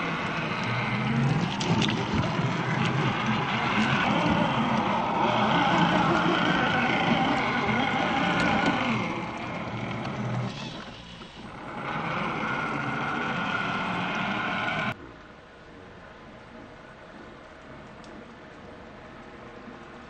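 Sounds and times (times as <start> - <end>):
rc truck motor whine: 0.0 - 15.0
tyres churning mud: 0.0 - 15.0.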